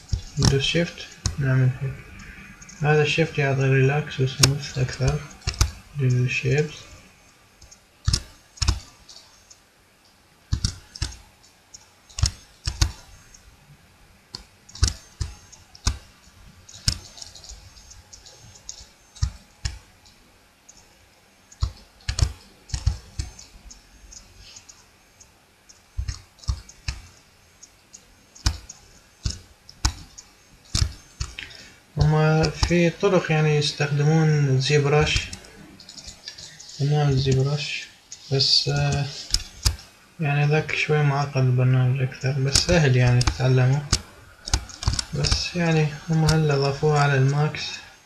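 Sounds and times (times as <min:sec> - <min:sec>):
mouse and keyboard clicks: 0:04.4 - 0:06.2, 0:11.8 - 0:13.4, 0:14.4 - 0:16.1, 0:16.7 - 0:20.8, 0:21.5 - 0:24.8, 0:35.0 - 0:37.4, 0:42.5 - 0:45.5.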